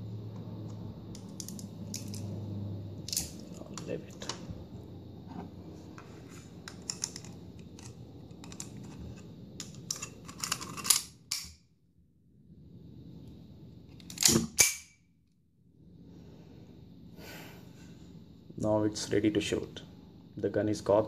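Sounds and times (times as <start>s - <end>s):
cartridges clicking into magazine: 9.6s - 11.6s, 14.0s - 15.0s.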